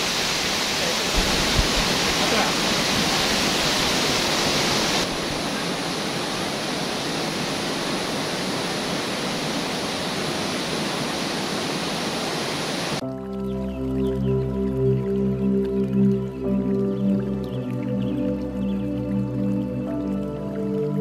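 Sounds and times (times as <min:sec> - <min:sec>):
water rushing over rocks: 0:00.0 - 0:13.0.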